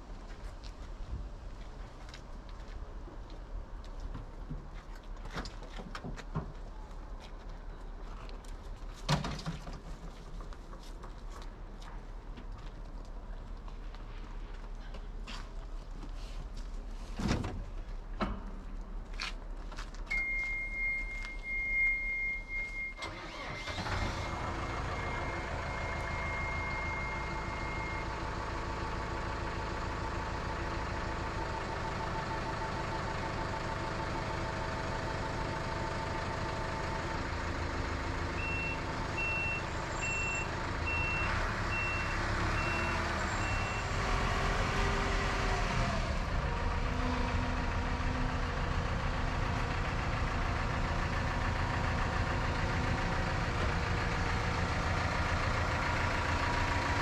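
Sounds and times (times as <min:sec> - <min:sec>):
diesel engine starting and running: 0:16.8 - 0:57.0
short warning beeps: 0:20.1 - 0:23.0.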